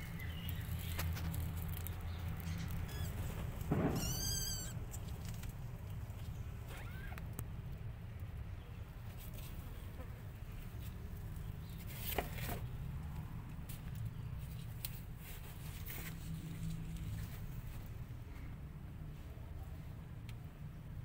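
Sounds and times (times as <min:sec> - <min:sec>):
paws and claws scratching: 0:00.1 - 0:07.3.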